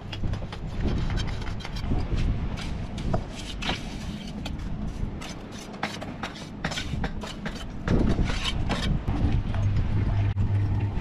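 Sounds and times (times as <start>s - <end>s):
trowel scraping wet mortar: 0.0s - 4.6s, 5.2s - 9.0s.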